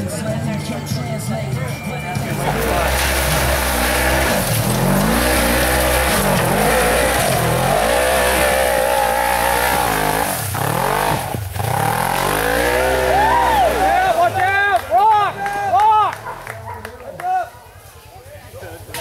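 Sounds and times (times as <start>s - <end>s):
off-road vehicle engine revving: 2.1s - 16.7s.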